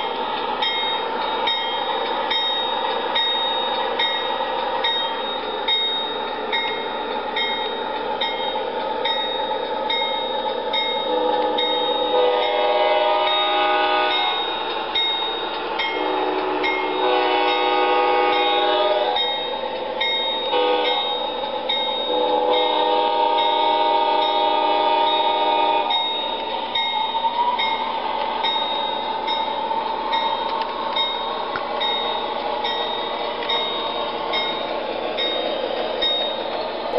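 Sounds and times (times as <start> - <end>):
model train horn blasts: 11.1 - 14.5, 16.0 - 19.4, 20.5 - 21.2, 22.1 - 26.0.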